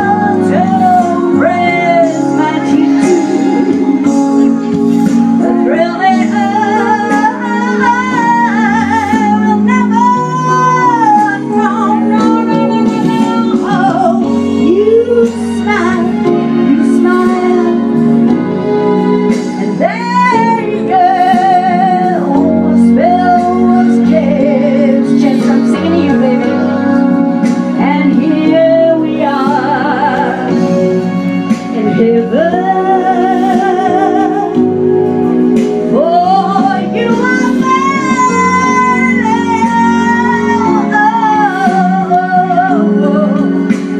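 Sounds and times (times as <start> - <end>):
sustained chord accompaniment: 0.0 - 43.9
woman singing through microphone: 0.0 - 43.9.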